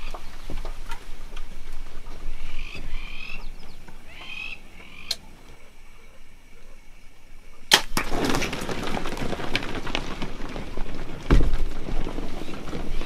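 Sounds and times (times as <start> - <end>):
hooves galloping on dry dirt: 0.0 - 5.5, 7.7 - 13.0
bow shot crack: 7.6 - 8.5
low thud: 9.8 - 12.2.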